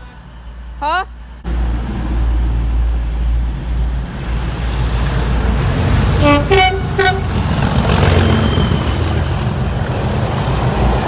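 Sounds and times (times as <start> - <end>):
train passing with rumble: 0.0 - 11.0
two-tone train horn: 6.2 - 7.4.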